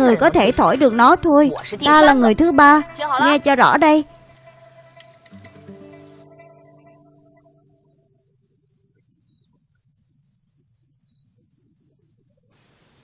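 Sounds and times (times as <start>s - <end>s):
low background music: 0.0s - 7.6s
high whistle note: 5.9s - 9.7s.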